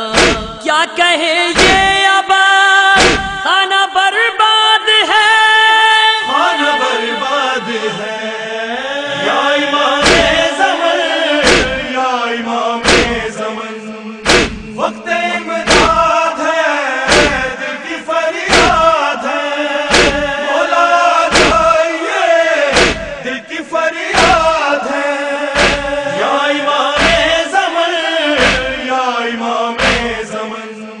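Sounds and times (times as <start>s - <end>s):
men chanting: 0.0s - 31.0s
chest-beating strikes: 0.1s - 0.6s, 3.0s - 3.4s, 10.0s - 10.5s, 11.4s - 11.9s, 12.8s - 13.3s, 14.3s - 14.8s, 15.7s - 16.1s, 17.1s - 17.5s, 18.5s - 18.9s, 19.9s - 20.4s, 21.3s - 21.8s, 22.7s - 23.2s, 25.6s - 26.0s, 27.0s - 27.4s, 28.4s - 28.8s, 29.8s - 30.2s.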